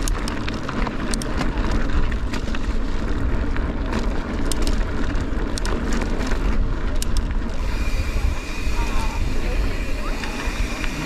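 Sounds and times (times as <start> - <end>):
clicks and rattles of stones: 0.0 - 7.7
bike tyres rumbling: 0.0 - 11.0
wind on microphone: 0.0 - 11.0.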